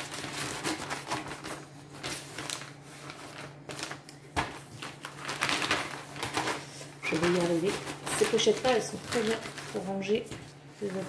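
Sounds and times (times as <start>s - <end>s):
plastic pouch and paper rustling: 0.0s - 11.0s.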